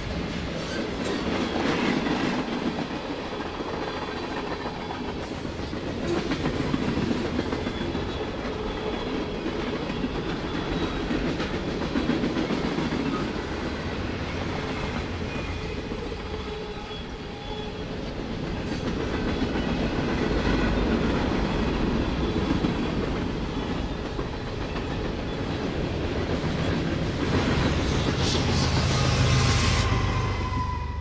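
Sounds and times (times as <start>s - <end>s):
freight train rumble: 0.0s - 31.0s
diesel locomotive engine drone: 19.2s - 31.0s.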